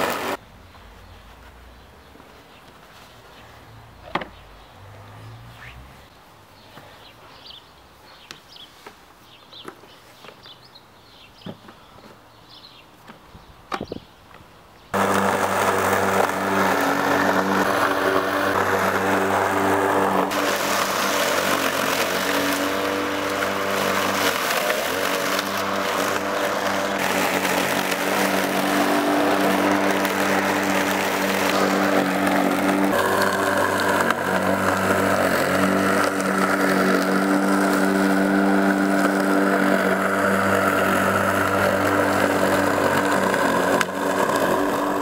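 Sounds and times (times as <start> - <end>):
electric lawn mower running: 0.0 - 0.4, 15.0 - 45.0.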